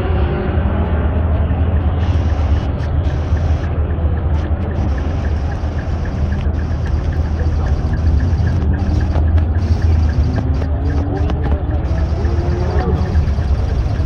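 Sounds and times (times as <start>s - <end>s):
truck engines idling: 0.0s - 14.0s
faint fast ticking: 1.6s - 14.0s.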